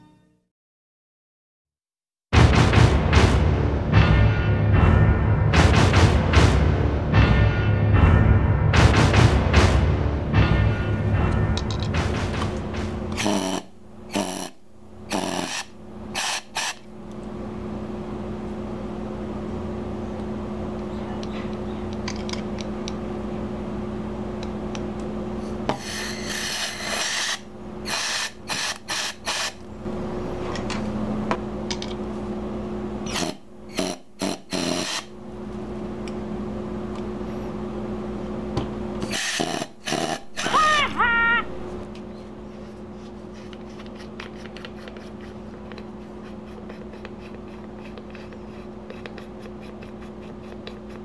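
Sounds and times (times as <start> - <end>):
gas leaking with buzzing hiss: 13.1 - 16.8, 33.0 - 35.1, 39.0 - 40.5
gas sputtering bursts: 13.2 - 16.8, 25.8 - 29.6, 33.1 - 35.1, 39.0 - 40.8.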